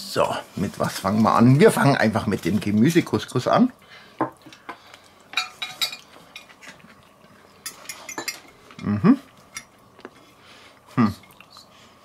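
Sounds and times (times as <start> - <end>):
cutlery clinking on a plate: 5.4 - 6.5, 7.6 - 8.6.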